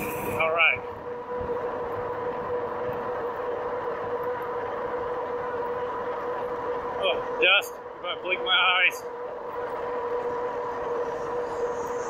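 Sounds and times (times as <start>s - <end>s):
road and wind noise: 0.0s - 12.0s
electric motor whining: 9.2s - 12.0s.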